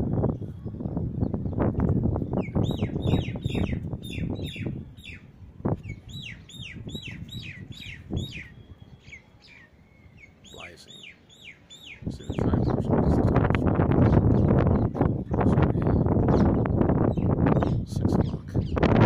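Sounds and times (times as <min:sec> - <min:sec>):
wind rumble on microphone: 0:00.0 - 0:10.4, 0:11.8 - 0:19.0
bird calling: 0:02.3 - 0:12.8.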